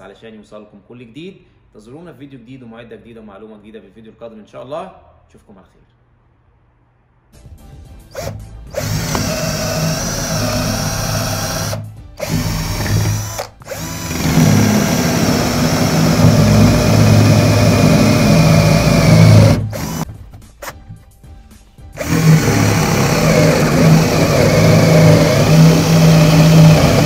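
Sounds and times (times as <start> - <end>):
cordless drill boring into wood: 8.2 - 20.0, 22.0 - 27.0.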